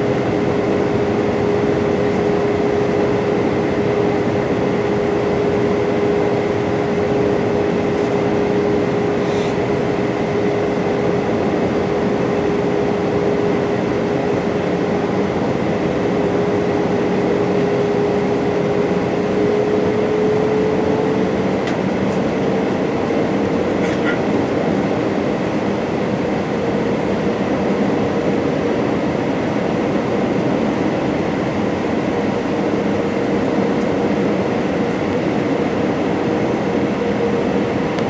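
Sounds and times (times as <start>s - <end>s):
jet engine drone: 0.0s - 38.0s
airflow rush: 6.4s - 10.1s.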